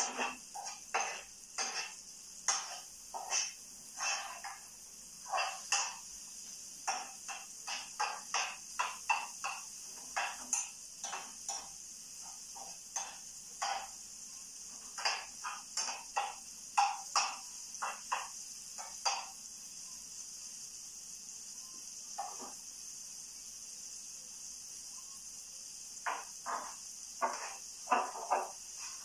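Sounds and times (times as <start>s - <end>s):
metal utensil scraping frying pan: 0.0s - 6.0s, 6.8s - 14.0s, 14.9s - 19.3s, 26.1s - 29.0s
food frying hiss: 0.0s - 29.0s.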